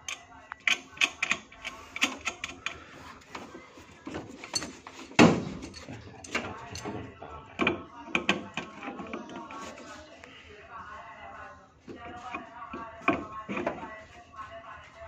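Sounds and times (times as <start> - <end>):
wrench clicks and knocks on metal: 0.0 - 2.8.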